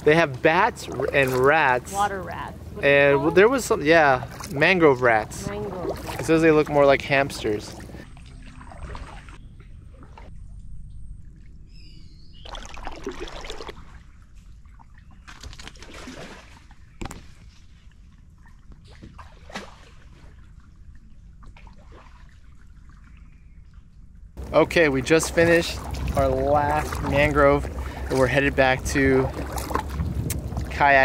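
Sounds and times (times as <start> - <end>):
water trickling off paddle: 0.0 - 2.2, 2.9 - 23.8, 24.4 - 31.0
paddle splashes in water: 0.7 - 1.8, 4.2 - 4.8, 5.4 - 10.3, 12.4 - 17.8, 18.4 - 23.4, 24.4 - 30.8.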